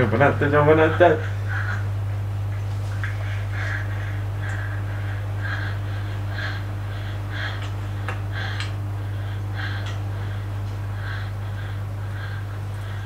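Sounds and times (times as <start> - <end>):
low hum: 0.0 - 13.0
heavy loud breathing: 3.2 - 13.0.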